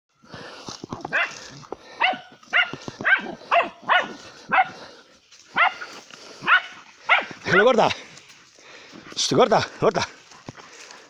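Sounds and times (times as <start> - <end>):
dogs barking: 1.0 - 7.7.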